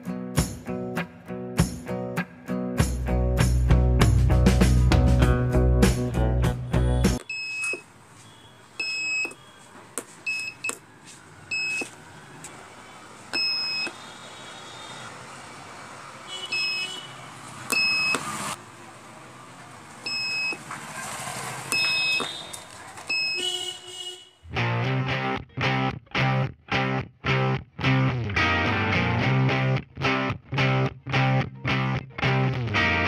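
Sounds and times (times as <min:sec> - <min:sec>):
buzzer short high beeps: 0:06.9 - 0:09.6, 0:16.4 - 0:17.1, 0:21.7 - 0:24.2.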